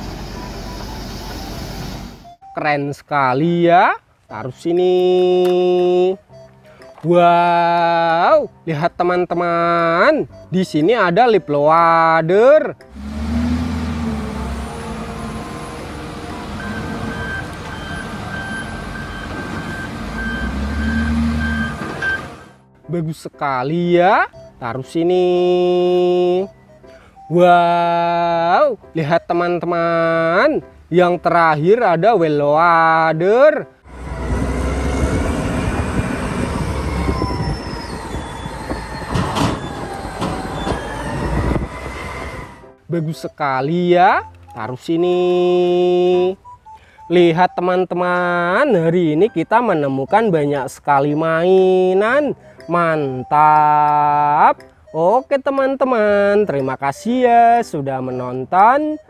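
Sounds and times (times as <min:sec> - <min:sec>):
diesel engine working hard: 0:00.0 - 0:02.3, 0:12.9 - 0:22.6, 0:33.8 - 0:42.8
reversing alarm beeping: 0:00.2 - 0:02.6, 0:14.3 - 0:22.6, 0:24.3 - 0:24.6, 0:26.4 - 0:27.4, 0:36.5 - 0:42.4.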